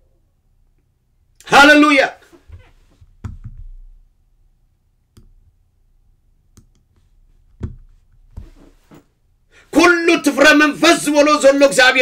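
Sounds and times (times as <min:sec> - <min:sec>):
faint steady hum: 0:02.2 - 0:09.8.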